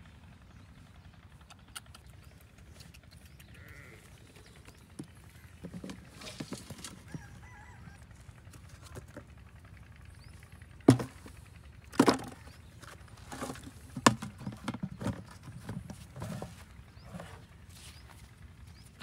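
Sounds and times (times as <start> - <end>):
plastic bucket and sticks knocking: 10.9 - 11.3, 11.9 - 12.4, 13.3 - 16.4
scuffs on sandy ground: 15.2 - 19.0.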